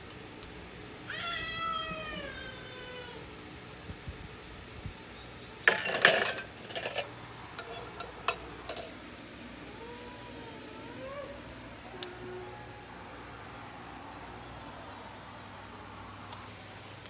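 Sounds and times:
dishes clinking in rack: 0:05.7 - 0:08.9.

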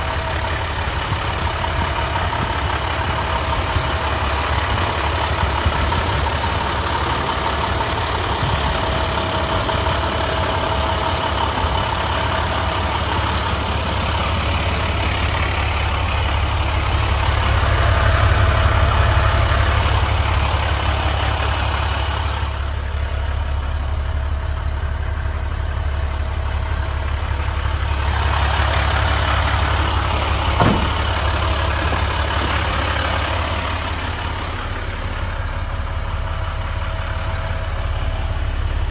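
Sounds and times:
diesel engine idling: 0:00.0 - 0:38.9
short knock: 0:30.6 - 0:31.0.

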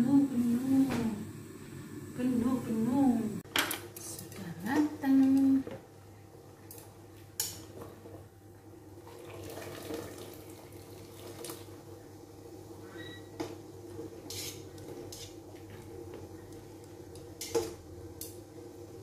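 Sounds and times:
water bubbling in a pot: 0:07.6 - 0:19.0.

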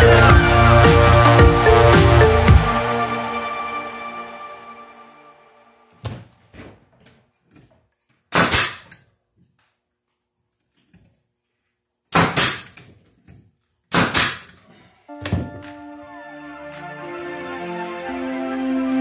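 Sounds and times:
nail gun firing into wood: 0:08.3 - 0:09.0, 0:12.1 - 0:12.9, 0:13.9 - 0:14.6.

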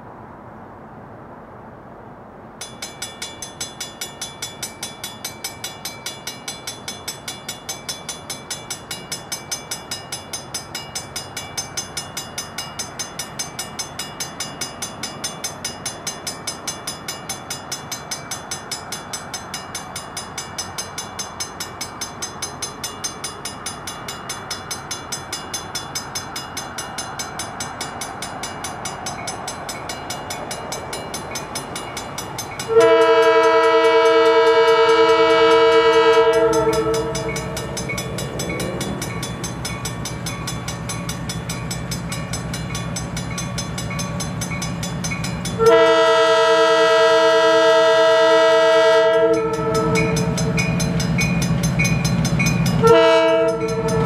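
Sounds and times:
crossing warning bells ringing: 0:02.6 - 0:54.0
locomotive air horn: 0:32.7 - 0:37.6, 0:45.6 - 0:50.4, 0:52.8 - 0:54.0.

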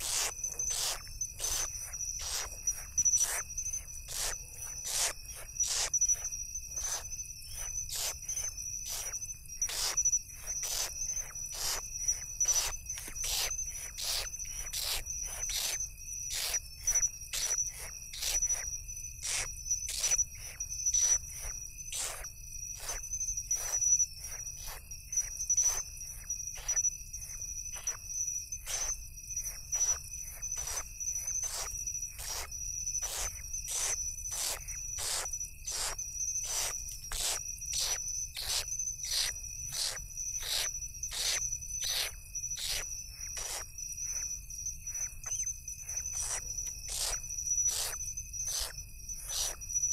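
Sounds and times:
insects trilling: 0:00.0 - 0:49.9
sharp irregular ticks: 0:04.1 - 0:06.2, 0:31.4 - 0:43.7, 0:45.0 - 0:49.6.

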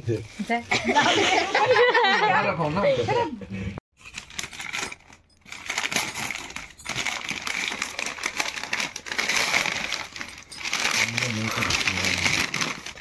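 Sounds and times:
wrapping paper crinkling: 0:04.0 - 0:13.0.

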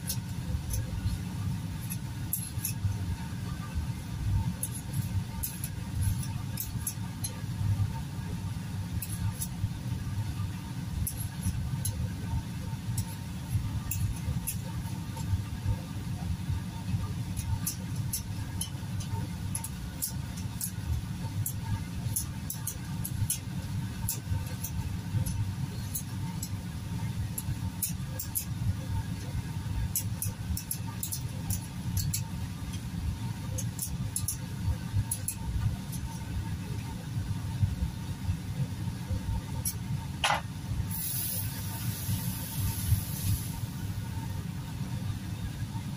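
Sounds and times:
steady low hum: 0:00.0 - 0:45.9.

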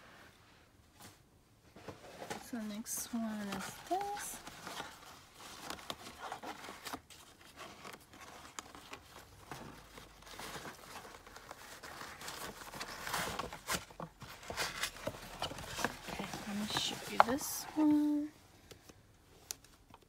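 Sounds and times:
paper gift bag rustling: 0:02.0 - 0:18.3.

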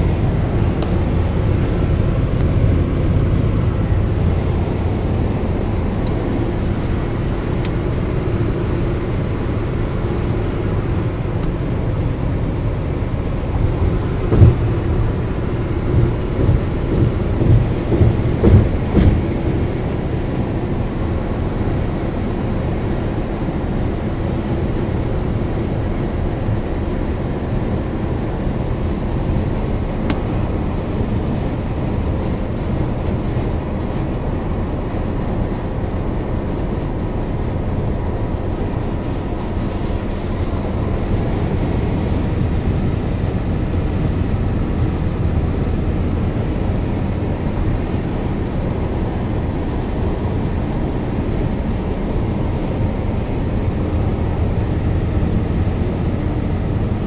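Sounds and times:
car road and engine noise: 0:00.0 - 0:57.0
low thumps: 0:13.6 - 0:19.4.

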